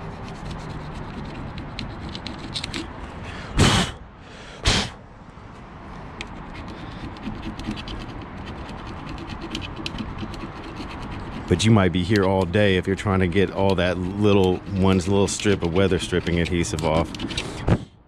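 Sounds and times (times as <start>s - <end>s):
hand tool scraping adhesive: 0.4s - 2.9s, 6.5s - 17.7s
short loud noise bursts: 3.4s - 5.0s.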